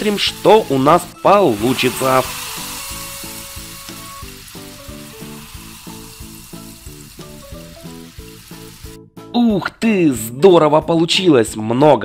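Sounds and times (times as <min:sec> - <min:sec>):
foam fizzing and crackling: 0:00.0 - 0:09.0
light background music: 0:00.0 - 0:12.0.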